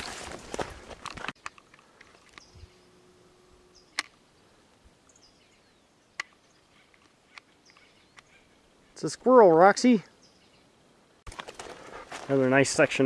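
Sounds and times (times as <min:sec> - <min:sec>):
footsteps on dirt trail: 0:00.0 - 0:02.7, 0:11.3 - 0:13.0
sharp clicks: 0:03.9 - 0:04.2, 0:06.2 - 0:08.3.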